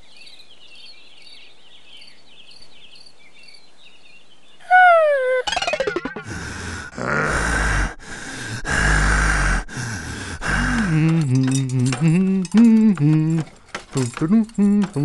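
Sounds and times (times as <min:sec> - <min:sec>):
cartoon voice babbling sing-song: 0:04.6 - 0:05.6
cartoon snarling growl: 0:06.9 - 0:08.0, 0:08.6 - 0:09.7.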